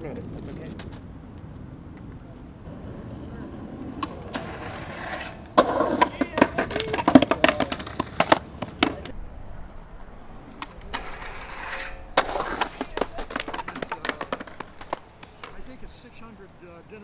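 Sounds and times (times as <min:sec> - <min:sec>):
skateboard wheels rolling: 0:00.0 - 0:17.0
skateboard grinding metal handrail: 0:02.8 - 0:09.1, 0:10.1 - 0:15.7
skateboard landing smack: 0:12.2 - 0:15.6.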